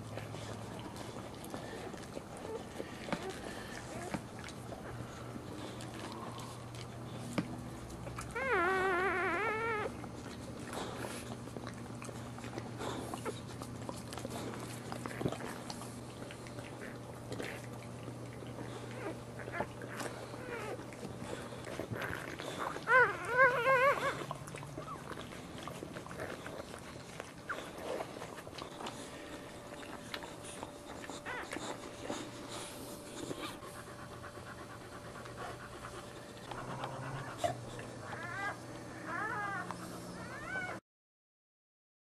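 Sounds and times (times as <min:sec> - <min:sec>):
dog panting: 0:00.0 - 0:40.8
puppies squealing: 0:08.2 - 0:10.0, 0:18.9 - 0:25.2, 0:36.4 - 0:40.8.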